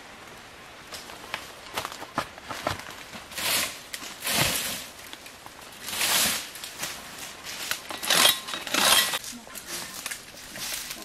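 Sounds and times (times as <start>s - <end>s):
dry palm fronds rustling: 0.0s - 11.0s.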